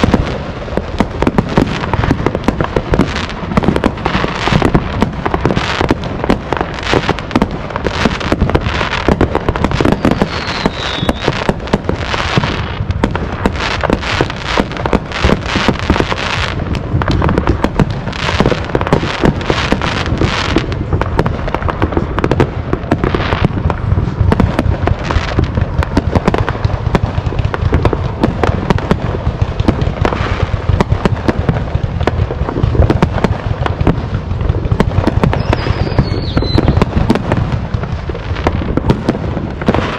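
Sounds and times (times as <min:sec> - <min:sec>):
fireworks bangs and crackling: 0:00.0 - 0:39.9
falling firework whistle: 0:07.9 - 0:11.6, 0:35.1 - 0:37.2.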